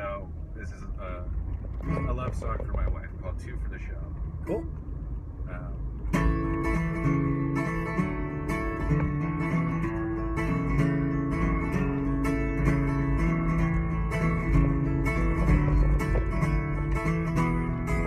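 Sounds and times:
low road rumble: 0:00.0 - 0:18.0
acoustic guitar strumming: 0:06.1 - 0:18.0.

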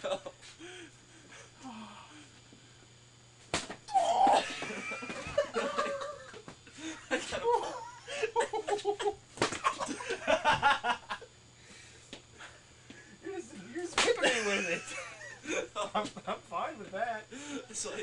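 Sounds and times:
person yelling: 0:03.9 - 0:04.5
young men laughing: 0:04.2 - 0:11.3, 0:13.8 - 0:18.0.

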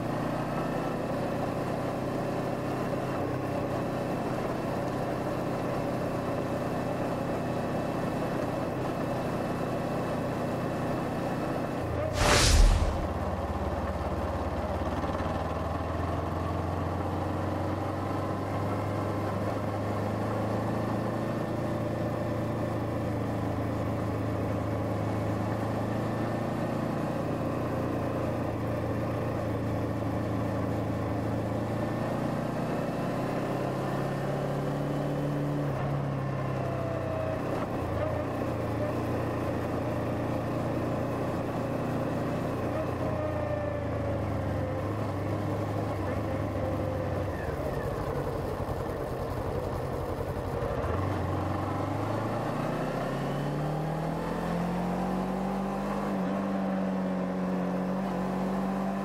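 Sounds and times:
road and wind noise: 0:00.0 - 0:59.0
motorcycle engine running: 0:45.8 - 0:52.2.

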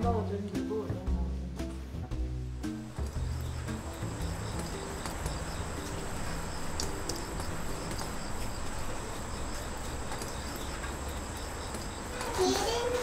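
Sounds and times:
insects chirping: 0:02.6 - 0:13.0.

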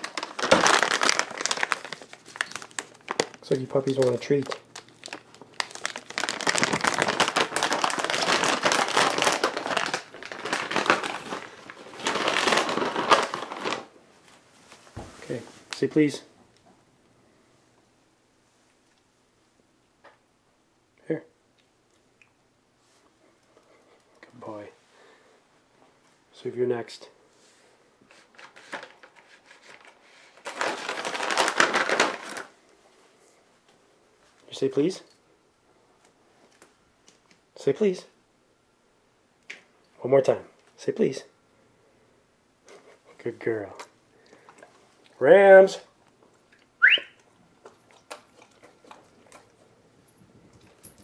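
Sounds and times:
plastic bag crinkling: 0:00.0 - 0:14.0, 0:28.1 - 0:32.6.

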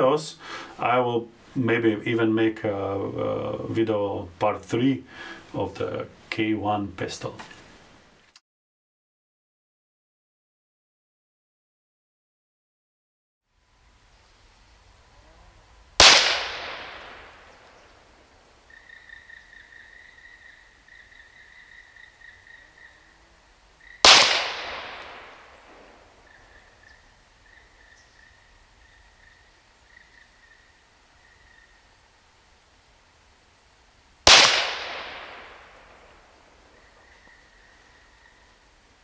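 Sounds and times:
air pistol shots echoing: 0:16.0 - 0:17.7, 0:24.0 - 0:26.0, 0:34.2 - 0:36.2.

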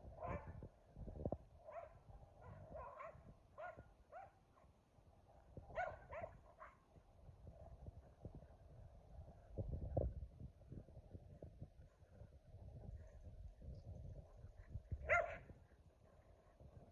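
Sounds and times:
dogs barking faintly: 0:14.4 - 0:16.9.

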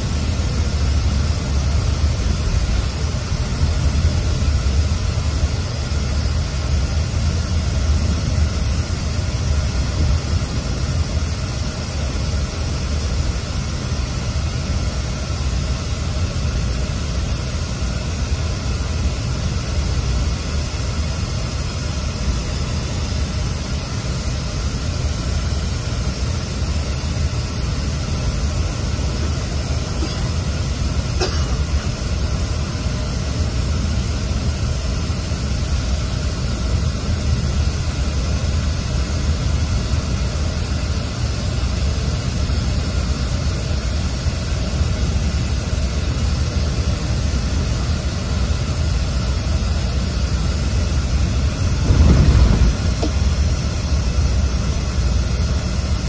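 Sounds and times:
air conditioning hiss: 0:00.0 - 0:56.0
engine and road rumble: 0:46.1 - 0:56.0.

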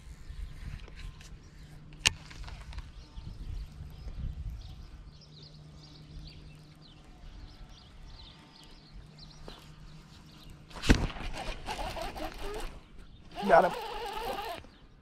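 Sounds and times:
fishing reel whirring: 0:11.4 - 0:14.7.

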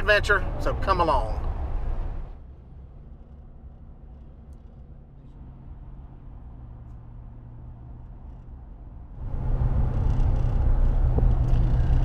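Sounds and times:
truck engine and road noise drone: 0:00.0 - 0:12.0
tyre and wind noise: 0:08.1 - 0:12.0.

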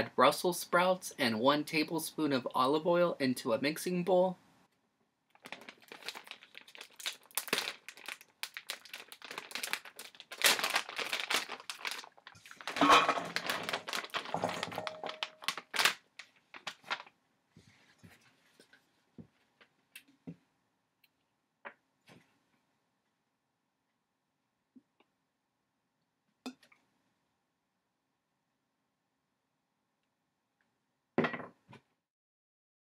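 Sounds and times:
plastic bag crinkling and tearing: 0:05.3 - 0:17.2
sprouts tumbling into metal bowl: 0:12.3 - 0:15.5.

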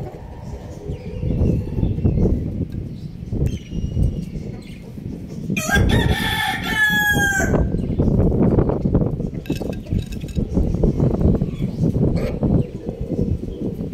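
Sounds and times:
low rumbling noise: 0:00.0 - 0:13.9
rooster crowing: 0:05.6 - 0:07.8.

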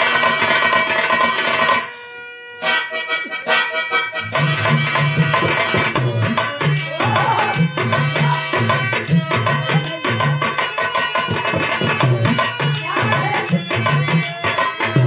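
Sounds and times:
hand drum beat: 0:04.4 - 0:15.0
person singing folk song: 0:06.4 - 0:08.6.

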